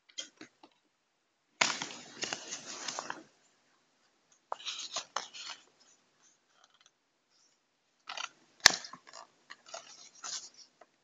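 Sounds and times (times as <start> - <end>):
packaging crinkling and rustling: 1.6 - 3.3.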